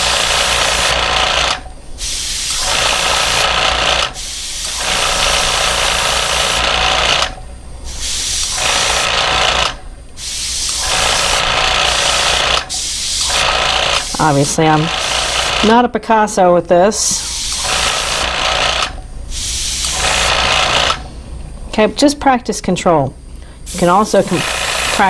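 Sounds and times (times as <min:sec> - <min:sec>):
airbrush hissing: 0:00.0 - 0:01.1, 0:02.0 - 0:07.1, 0:07.9 - 0:15.7, 0:17.1 - 0:21.0, 0:23.6 - 0:25.0
low steady hum: 0:07.3 - 0:08.0, 0:18.9 - 0:25.0.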